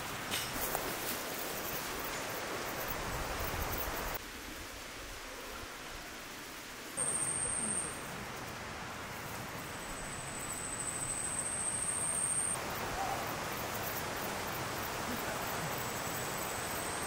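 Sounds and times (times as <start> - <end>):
steady outdoor hiss: 0.0 - 17.0
thin high steady tone: 7.0 - 8.2, 9.7 - 17.0.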